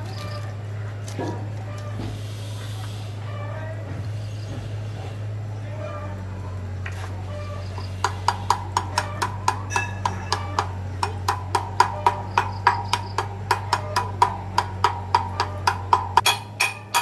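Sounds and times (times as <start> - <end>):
steady low hum: 0.0 - 17.0
hammer tapping steel punch: 8.0 - 17.0.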